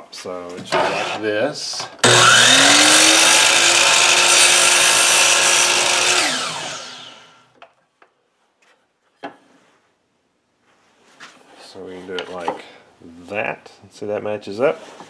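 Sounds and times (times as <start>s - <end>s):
miter saw cutting wood: 0.7s - 1.3s, 2.0s - 7.5s.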